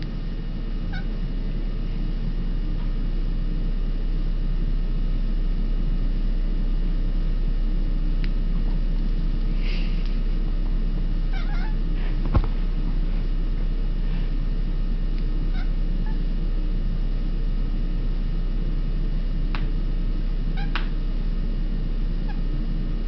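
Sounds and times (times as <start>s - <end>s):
steady low hum: 0.0s - 23.0s
cat chirping calls: 0.9s - 1.2s, 11.3s - 11.8s, 15.5s - 16.2s, 20.6s - 20.8s.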